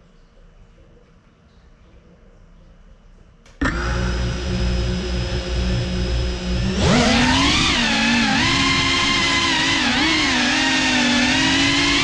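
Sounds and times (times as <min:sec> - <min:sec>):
drone motors whining: 0:03.6 - 0:12.0.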